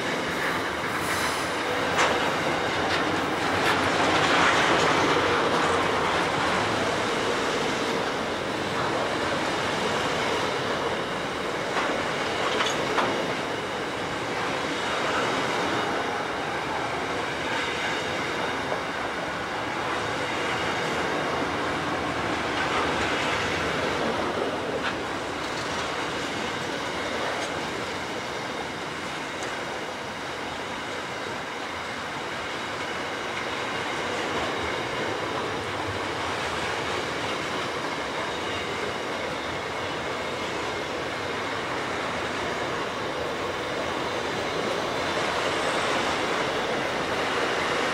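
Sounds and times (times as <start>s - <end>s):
train wheels rolling on rails: 0.0s - 47.9s.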